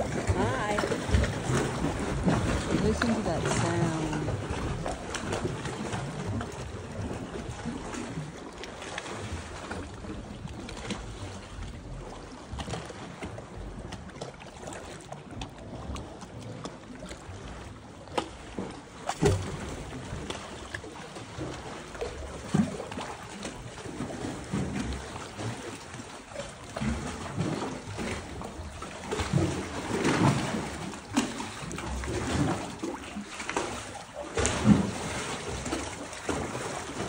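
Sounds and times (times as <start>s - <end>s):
water sloshing around kayak: 0.0s - 37.0s
sharp splashes or knocks: 29.1s - 37.0s.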